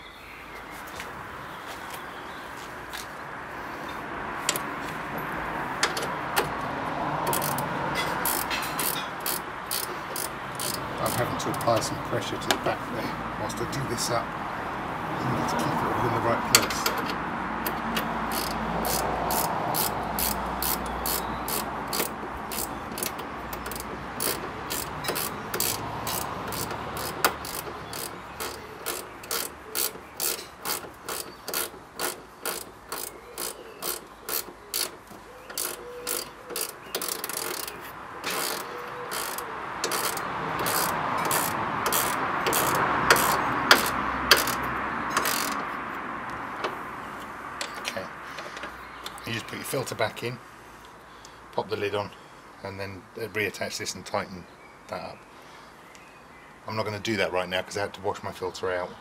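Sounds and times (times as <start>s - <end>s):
hand ratchet clicking: 7.2s - 11.9s, 16.5s - 45.8s
handling noise: 16.4s - 49.2s.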